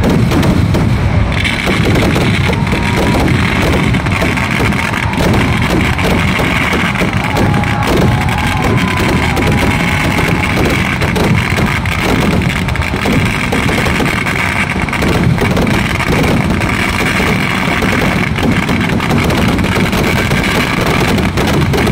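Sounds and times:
fireworks bangs and crackling: 0:00.0 - 0:21.9.

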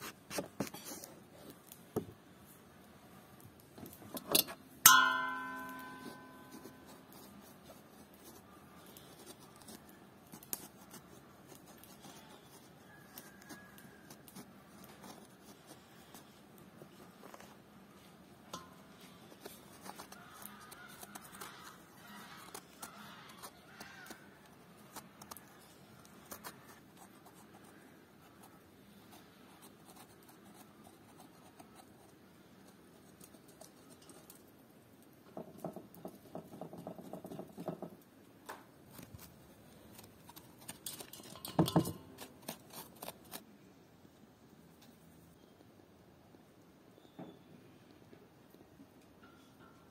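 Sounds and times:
knife scraping eggplant: 0:04.1 - 0:17.5, 0:18.6 - 0:34.4, 0:38.8 - 0:43.5.

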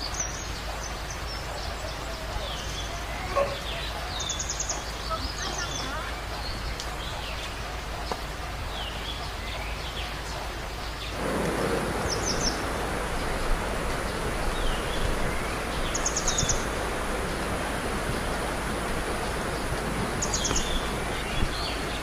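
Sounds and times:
birds trilling and calling: 0:00.0 - 0:22.0
mountain stream rapids rushing: 0:00.0 - 0:22.0.

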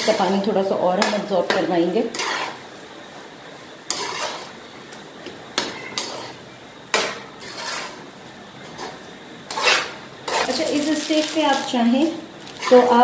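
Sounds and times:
steel spoon scraping a pan: 0:00.0 - 0:01.2, 0:02.0 - 0:02.6, 0:03.8 - 0:04.6, 0:05.6 - 0:08.0, 0:08.8 - 0:11.7, 0:12.4 - 0:13.0.

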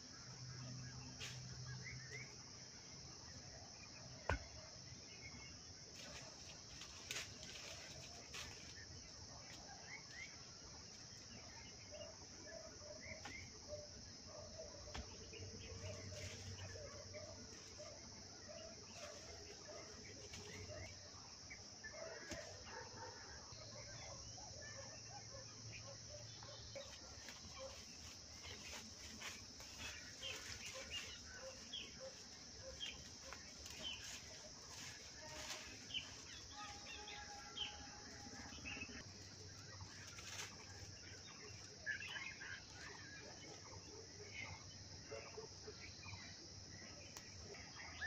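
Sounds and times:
crickets droning: 0:00.0 - 0:48.0
rustling of branches and sticks: 0:05.8 - 0:10.2, 0:15.1 - 0:18.0, 0:18.6 - 0:21.0, 0:26.8 - 0:41.8.

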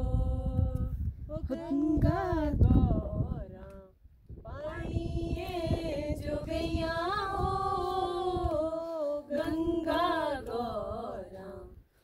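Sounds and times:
women singing unaccompanied: 0:00.0 - 0:11.9.

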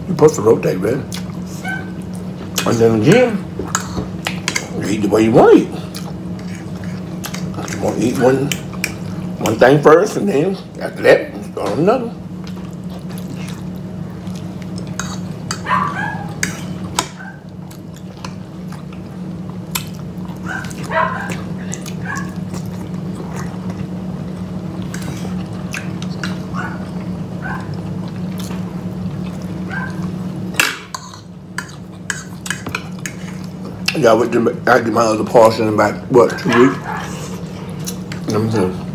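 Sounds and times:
dogs whining: 0:01.2 - 0:02.3, 0:15.0 - 0:18.9, 0:20.2 - 0:24.0, 0:24.8 - 0:30.3, 0:36.3 - 0:38.1.

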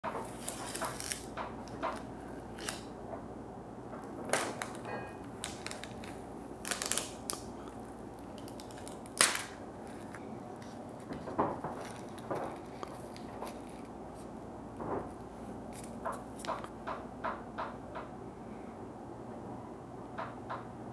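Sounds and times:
paper pouch crinkling: 0:00.2 - 0:02.9, 0:04.3 - 0:14.3.

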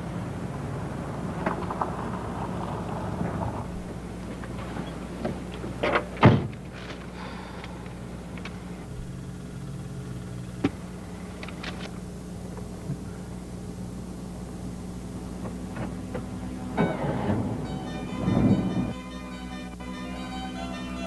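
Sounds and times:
steady low hum: 0:03.3 - 0:21.0
car door slamming: 0:06.2 - 0:06.6.

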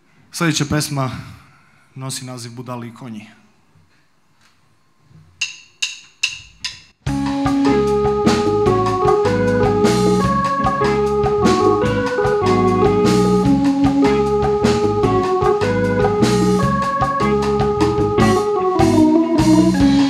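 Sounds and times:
organ keyboard chords: 0:07.0 - 0:20.0
pop rock band playing: 0:07.1 - 0:20.0.

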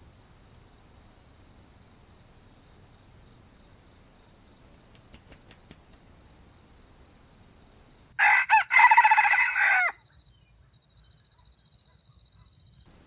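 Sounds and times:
rooster crowing: 0:08.2 - 0:10.0.

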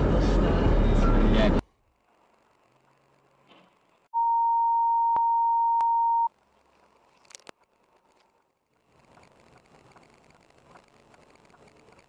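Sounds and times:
faint road noise: 0:00.0 - 0:04.1, 0:06.3 - 0:12.0
censor bleep tone: 0:04.2 - 0:06.3.

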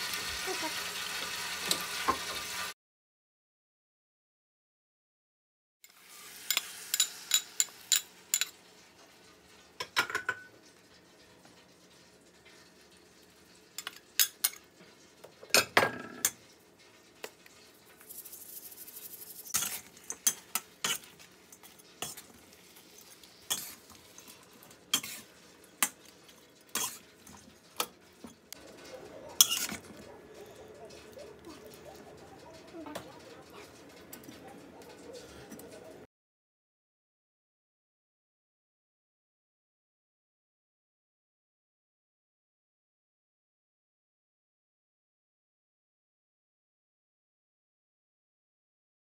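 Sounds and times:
food sizzling: 0:00.0 - 0:02.8, 0:05.8 - 0:36.1
spatula scraping wok: 0:05.9 - 0:08.8, 0:17.2 - 0:36.0
spatula clanking on wok: 0:06.4 - 0:08.6, 0:19.5 - 0:30.0.

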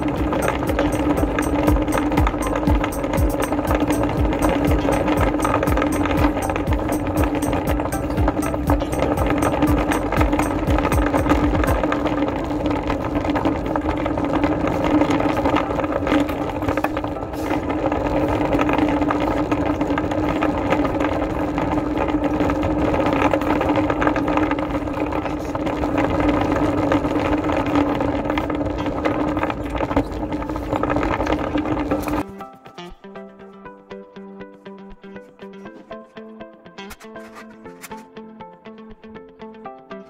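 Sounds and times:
machine humming: 0:00.0 - 0:32.2
wheels rumbling on tiled floor: 0:00.0 - 0:32.3.

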